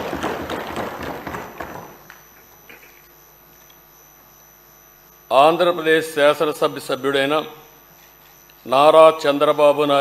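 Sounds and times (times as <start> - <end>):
applause: 0.0 - 2.0
room hum: 0.0 - 10.0.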